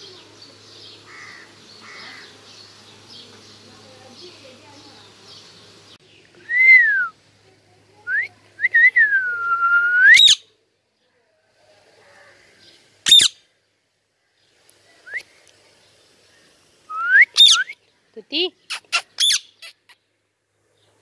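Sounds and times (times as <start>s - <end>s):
parakeet whistling: 10.1s - 10.4s, 17.0s - 17.8s
parakeet screeching: 13.0s - 13.4s, 18.7s - 19.9s.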